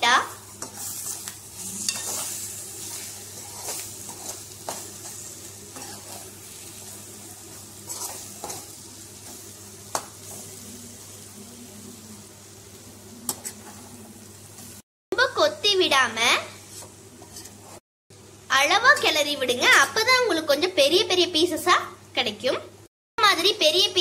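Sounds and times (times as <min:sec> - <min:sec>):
food sizzling in a pan: 0:00.0 - 0:22.7
spatula scraping a pan: 0:00.6 - 0:07.1, 0:07.8 - 0:10.6, 0:13.3 - 0:14.0, 0:16.5 - 0:17.8.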